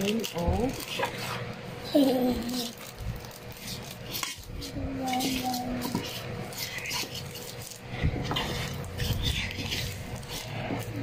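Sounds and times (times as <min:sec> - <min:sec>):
fork scraping a bowl: 0:00.8 - 0:01.5, 0:03.5 - 0:11.0.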